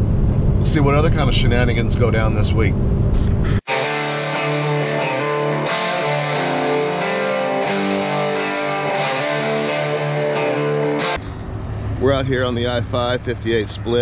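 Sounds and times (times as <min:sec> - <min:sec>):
guitar background music: 0:03.7 - 0:11.2.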